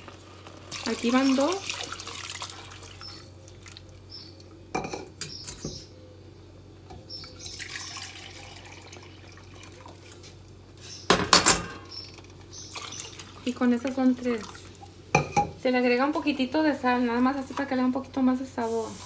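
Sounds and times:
water pouring and splashing: 0.0s - 4.0s, 12.2s - 14.9s
kitchenware knocking: 11.1s - 11.8s
loud kitchenware clatter: 11.1s - 12.0s.

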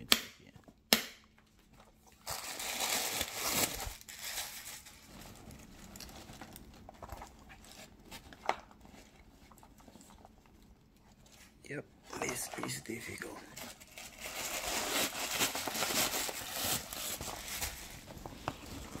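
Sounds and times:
tissue paper crinkling: 2.0s - 9.6s, 12.1s - 19.0s.

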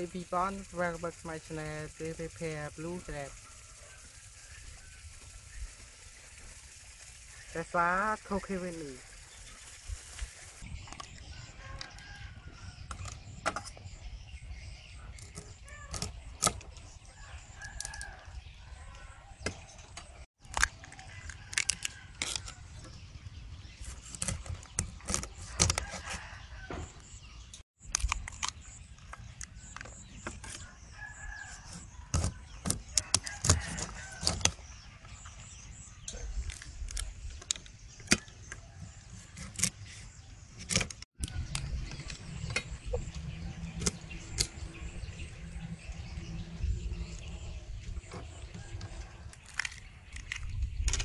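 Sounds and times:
rooster crowing: 11.3s - 12.8s, 17.2s - 19.4s, 30.6s - 32.2s, 33.0s - 34.4s
cleaver cracking crab shells: 20.4s - 22.6s, 27.8s - 30.0s, 49.3s - 51.0s.

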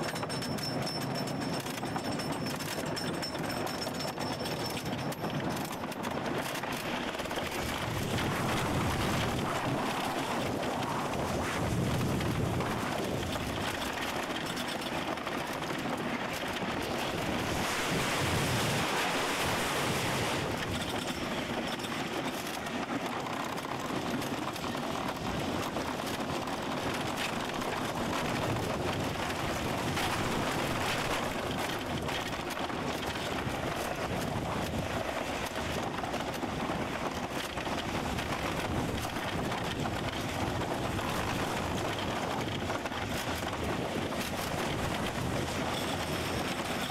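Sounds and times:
roller coaster wheels rumbling: 0.0s - 46.9s
wind rushing over microphone: 5.5s - 46.9s.

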